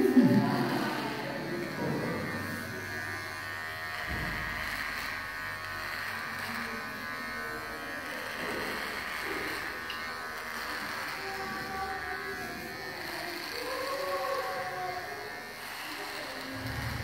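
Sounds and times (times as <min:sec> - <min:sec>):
electric hair clipper buzzing: 0:00.0 - 0:17.0.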